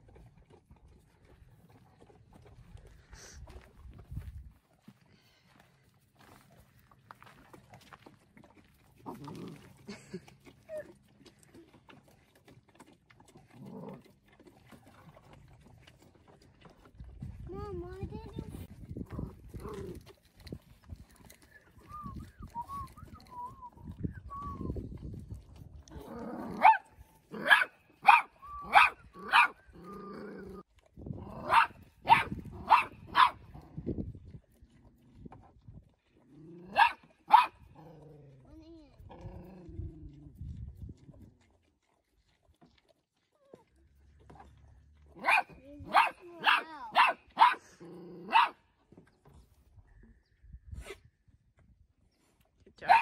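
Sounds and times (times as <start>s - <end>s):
calf sucking from a bottle: 0.0s - 4.2s, 6.0s - 27.3s, 38.3s - 44.8s
puppy barking in high yaps: 26.6s - 29.6s, 31.4s - 33.4s, 36.7s - 37.6s, 45.2s - 47.7s, 48.3s - 48.6s.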